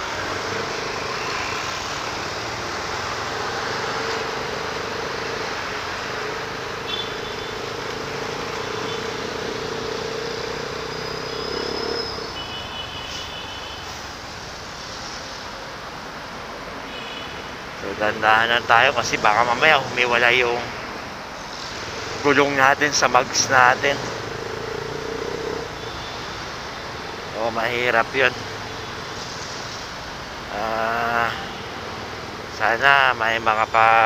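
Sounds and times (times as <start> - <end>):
road noise: 0.0 - 34.0
motorcycle engine running: 0.1 - 12.4, 23.7 - 27.4.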